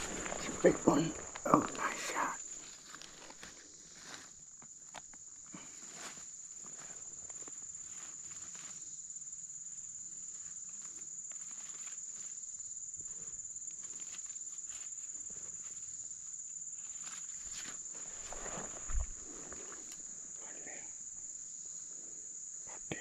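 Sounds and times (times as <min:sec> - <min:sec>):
faint footsteps: 0:00.0 - 0:04.3, 0:17.5 - 0:20.1
crackles: 0:00.0 - 0:05.8
insect chorus buzzing: 0:00.0 - 0:23.0.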